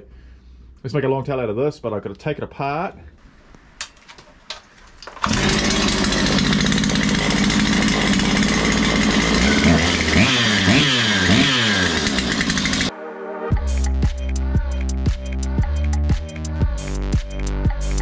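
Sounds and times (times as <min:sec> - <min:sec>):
chainsaw engine revving: 0:05.2 - 0:12.9.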